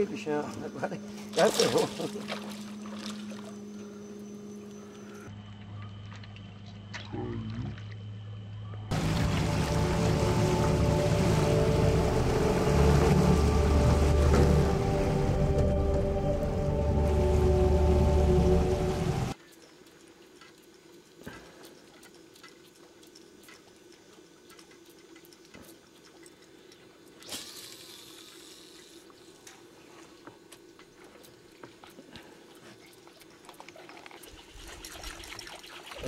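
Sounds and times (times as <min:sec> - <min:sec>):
faint water lapping: 0:00.0 - 0:08.2, 0:08.9 - 0:36.0.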